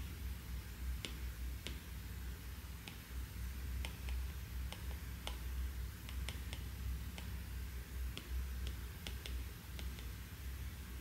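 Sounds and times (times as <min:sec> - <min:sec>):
low steady hum: 0:00.0 - 0:11.0
stylus tapping on glass screen: 0:03.8 - 0:07.4, 0:08.1 - 0:10.2.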